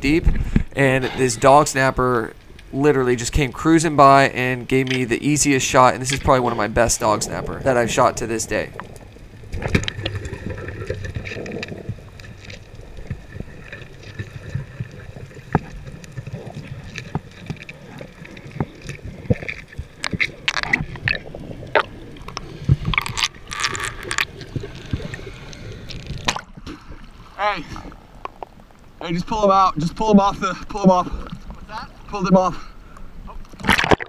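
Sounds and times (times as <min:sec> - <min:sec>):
water rushing bursts: 0:00.8 - 0:28.2
muffled underwater rumble: 0:05.5 - 0:26.2
sharp clicks and crackles: 0:08.5 - 0:26.6.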